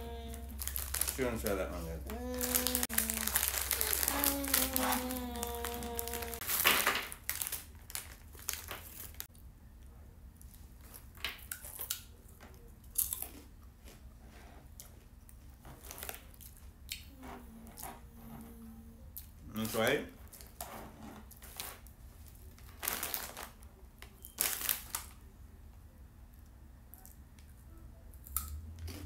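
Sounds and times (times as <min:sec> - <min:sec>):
plastic snack bag crinkling: 0:00.1 - 0:09.3, 0:21.4 - 0:25.2
bag ripping open: 0:00.5 - 0:01.5, 0:02.1 - 0:09.3, 0:22.6 - 0:23.6, 0:24.4 - 0:25.1.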